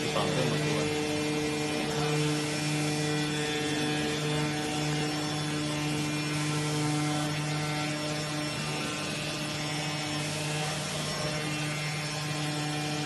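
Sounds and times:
suction blower hum and hiss: 0:00.0 - 0:13.0.

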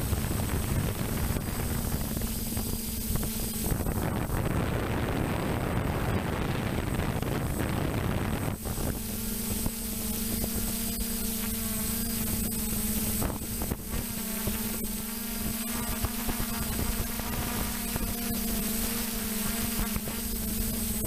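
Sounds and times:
wind buffeting microphone: 0:00.0 - 0:10.6
drone motors humming: 0:00.0 - 0:21.0.

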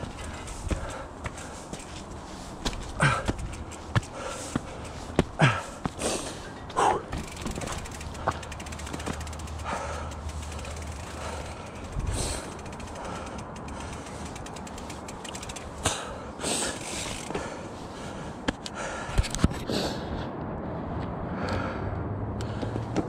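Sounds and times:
bike knocking against rocks: 0:00.0 - 0:06.0, 0:06.6 - 0:16.1
bike freehub ratchet ticking: 0:03.0 - 0:05.2, 0:07.1 - 0:17.4.

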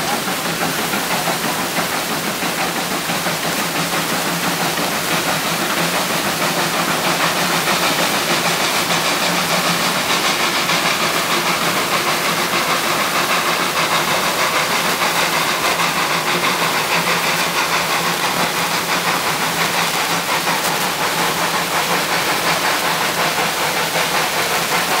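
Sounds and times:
steam hissing: 0:00.0 - 0:25.0
steam locomotive chuffing: 0:00.0 - 0:25.0.

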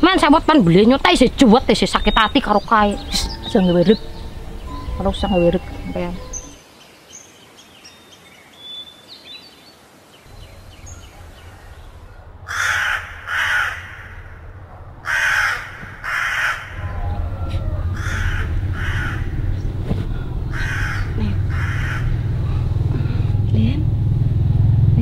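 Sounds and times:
low steady hum: 0:00.0 - 0:06.6, 0:10.3 - 0:25.0
crow cawing: 0:11.2 - 0:19.6, 0:20.2 - 0:23.2.

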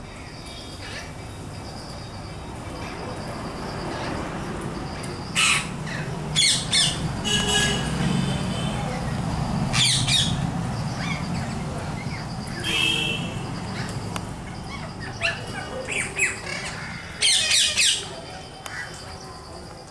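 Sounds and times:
parakeets squawking: 0:05.2 - 0:19.0.

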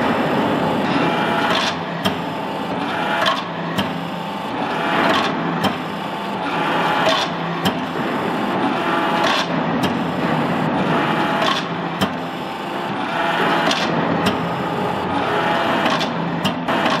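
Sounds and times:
hydraulic press whirring: 0:00.0 - 0:17.0
sharp mechanical clicks: 0:01.4 - 0:04.1, 0:05.0 - 0:08.0, 0:09.2 - 0:10.1, 0:11.3 - 0:12.3, 0:13.6 - 0:17.0.

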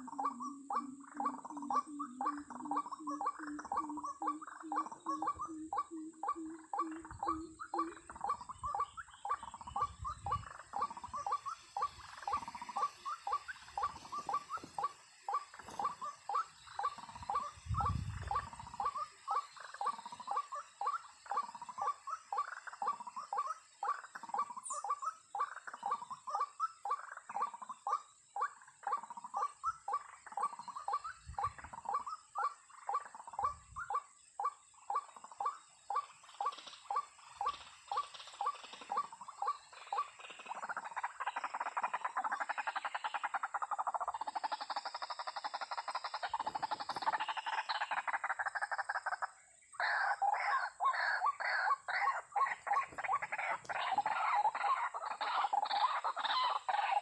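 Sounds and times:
waterhen harsh calls: 0:49.8 - 0:57.0.

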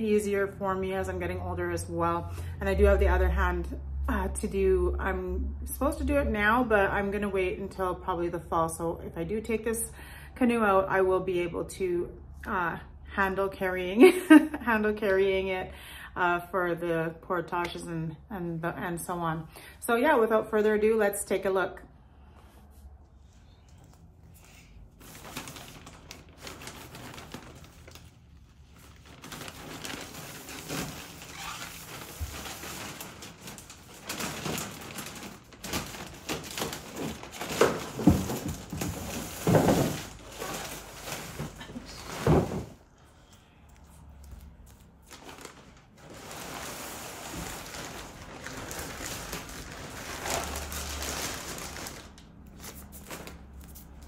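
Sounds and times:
plastic wrap crinkling and rustling: 0:23.2 - 0:54.0.

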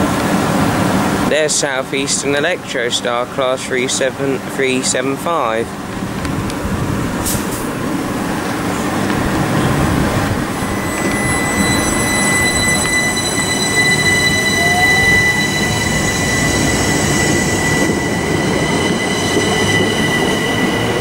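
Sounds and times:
train rumbling past: 0:00.0 - 0:21.0
high whining tones: 0:09.4 - 0:21.0.

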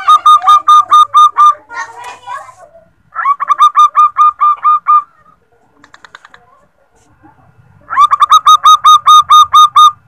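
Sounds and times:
dove cooing: 0:00.0 - 0:01.7, 0:03.1 - 0:05.4, 0:07.9 - 0:10.0.

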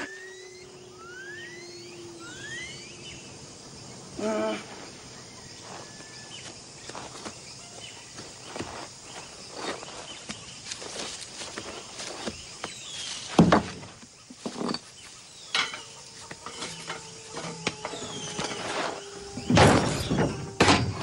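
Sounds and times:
bird chirps: 0:00.0 - 0:04.2, 0:14.2 - 0:20.6
jungle ambience: 0:00.0 - 0:21.0
man grunting: 0:04.2 - 0:04.8.

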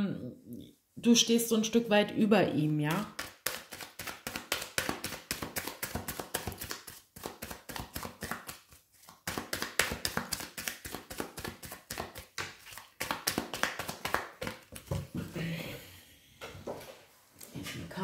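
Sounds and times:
cards being shuffled: 0:02.9 - 0:15.0.

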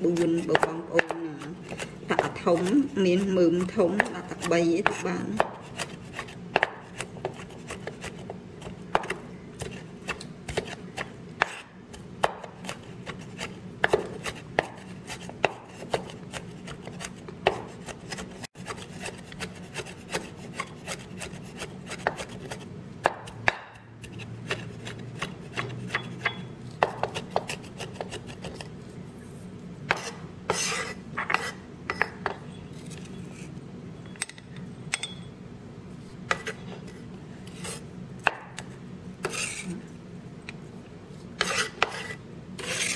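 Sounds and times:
blade scraping across board: 0:29.9 - 0:31.6, 0:39.2 - 0:39.8, 0:41.4 - 0:42.9.

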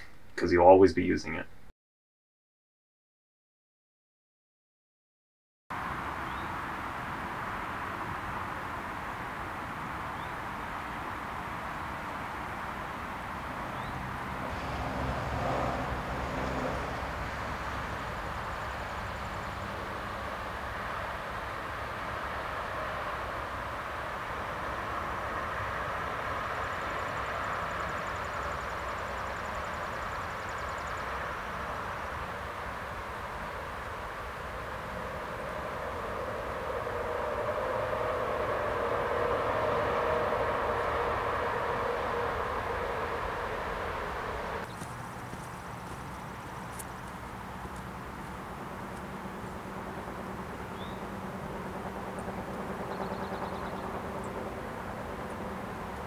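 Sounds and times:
low hum and hiss: 0:00.0 - 0:01.7.

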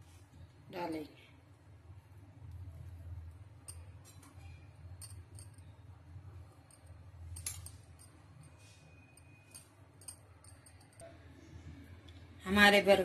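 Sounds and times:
low steady hum: 0:00.0 - 0:13.0
metal spoon clinking on plate: 0:03.6 - 0:05.8, 0:06.6 - 0:11.0.

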